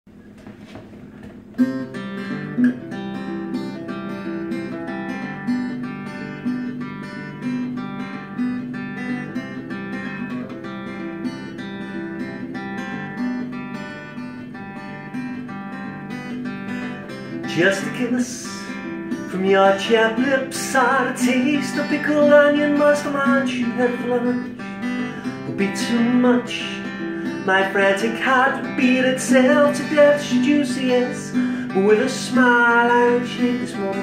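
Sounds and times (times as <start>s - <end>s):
acoustic guitar playing: 0.1s - 34.0s.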